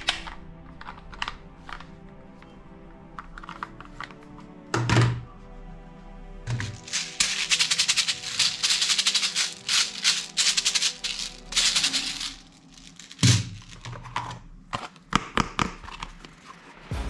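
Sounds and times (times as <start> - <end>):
background music: 0.0 - 17.0
plastic toy rattling: 6.5 - 13.9.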